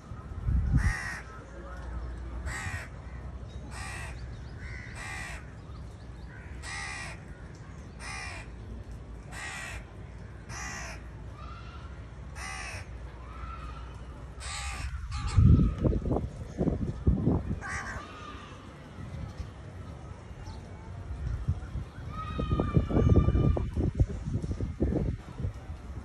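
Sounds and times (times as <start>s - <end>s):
crows cawing: 0.8s - 1.3s, 2.5s - 5.6s, 6.3s - 7.4s, 8.0s - 8.5s, 9.3s - 11.1s, 12.4s - 13.0s, 14.4s - 15.5s, 17.6s - 18.5s.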